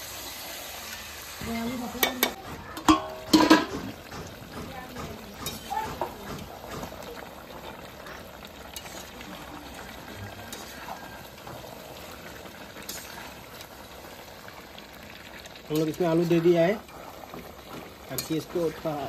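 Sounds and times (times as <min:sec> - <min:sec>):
curry bubbling: 0:00.0 - 0:19.0
metal spatula scraping pan: 0:08.1 - 0:09.4, 0:10.1 - 0:11.7, 0:12.8 - 0:13.4.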